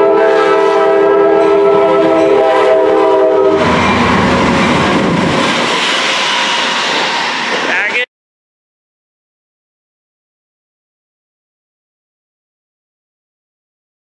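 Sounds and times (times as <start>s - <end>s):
locomotive horn chord: 0.0s - 4.1s
train wheel and rail noise: 0.0s - 8.1s.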